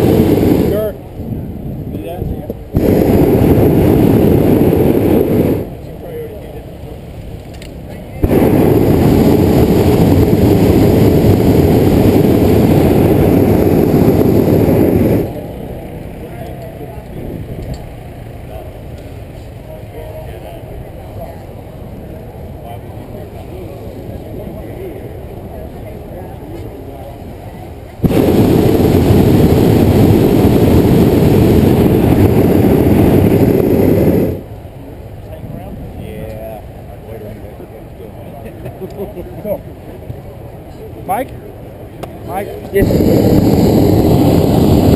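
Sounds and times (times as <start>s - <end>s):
propane burner firing: 0.0s - 1.0s, 2.7s - 6.4s, 7.2s - 15.4s, 28.0s - 34.5s, 42.0s - 44.9s.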